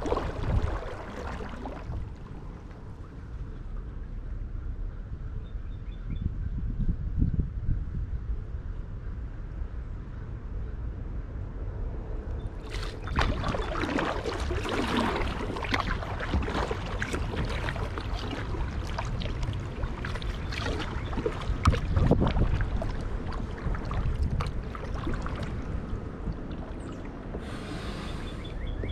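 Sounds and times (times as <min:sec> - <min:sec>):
kayak paddle splashing: 0:00.0 - 0:03.3, 0:12.6 - 0:28.6
steady low rumble: 0:00.0 - 0:28.9.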